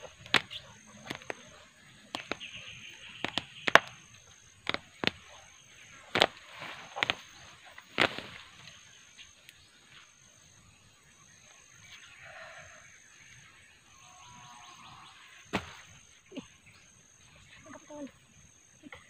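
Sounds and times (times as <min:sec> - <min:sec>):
digging tool striking soil: 0:00.0 - 0:01.5, 0:02.2 - 0:02.6, 0:03.2 - 0:04.0, 0:04.6 - 0:05.3, 0:06.1 - 0:07.2, 0:07.9 - 0:08.4
scraping of soil and roots: 0:00.0 - 0:02.6, 0:03.2 - 0:04.0, 0:04.6 - 0:05.4, 0:06.0 - 0:08.7
faint insect trill: 0:00.0 - 0:19.0.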